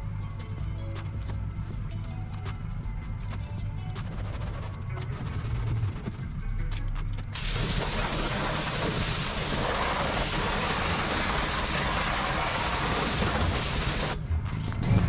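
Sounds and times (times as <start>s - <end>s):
pressure washer spraying water: 7.4s - 14.2s.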